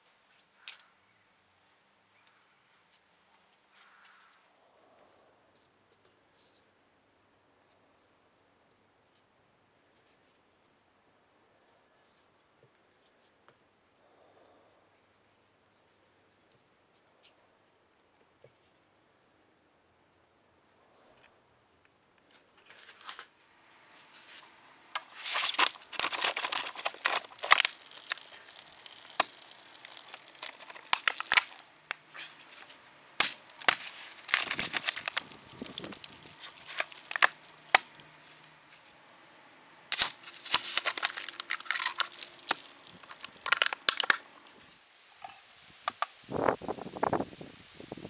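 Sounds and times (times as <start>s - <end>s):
knife stabbing plastic bottle: 25.0s - 38.0s, 39.9s - 44.2s
plastic crumpling and tearing: 25.0s - 38.9s, 39.9s - 44.6s.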